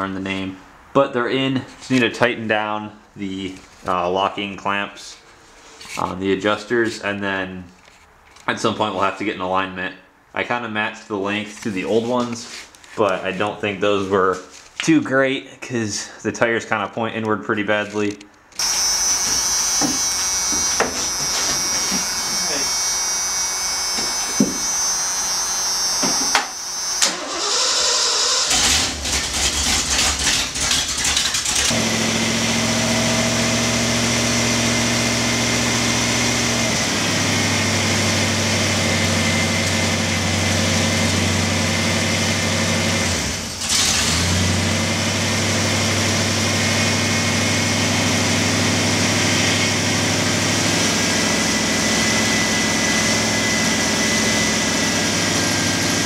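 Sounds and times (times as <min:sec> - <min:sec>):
engine idling: 0:18.6 - 0:44.1
engine cranking on starter: 0:26.5 - 0:34.1, 0:34.9 - 0:56.0.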